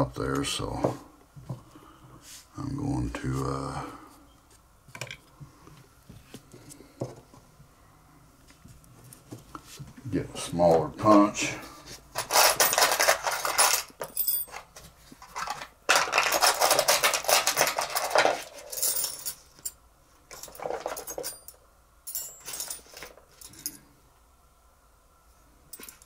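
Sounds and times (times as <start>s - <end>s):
metal tools rattling and clinking: 12.2s - 23.8s, 25.7s - 26.0s.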